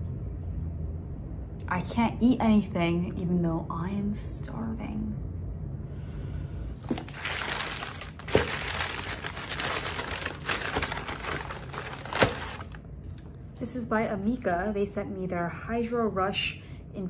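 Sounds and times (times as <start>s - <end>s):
packing paper crinkling: 6.8s - 12.8s.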